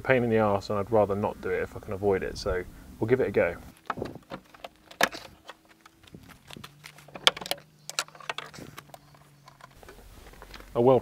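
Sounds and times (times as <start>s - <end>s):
car bonnet hinges clicking: 3.8s - 10.7s.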